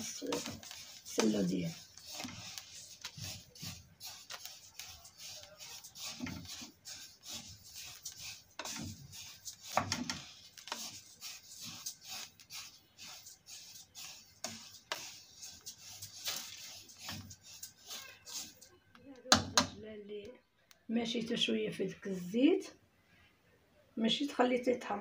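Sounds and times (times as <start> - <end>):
spatula stirring seeds in a pot: 0.0 - 18.8.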